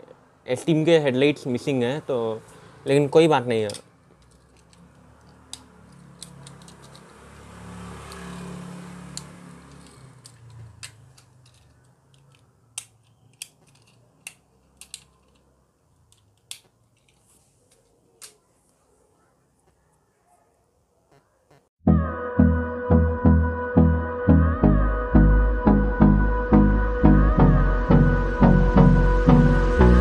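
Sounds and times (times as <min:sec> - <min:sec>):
toy cars clicking on stone floor: 0:03.6 - 0:07.2, 0:09.1 - 0:18.4.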